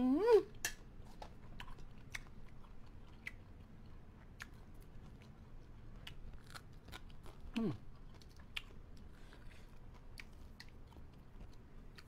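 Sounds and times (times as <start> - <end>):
person humming: 0.0 - 0.6, 7.6 - 7.8
food crunching while chewed: 0.6 - 12.0.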